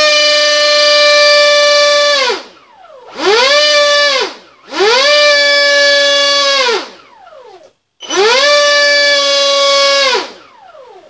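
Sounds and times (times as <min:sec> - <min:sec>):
electric motor whining: 0:03.1 - 0:11.0.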